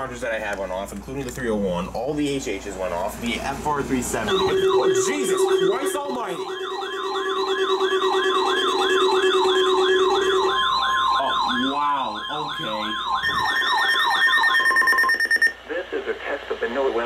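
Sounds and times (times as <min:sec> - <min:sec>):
steady beeping tones: 0:04.0 - 0:15.6
warbling siren alarms: 0:04.2 - 0:15.6.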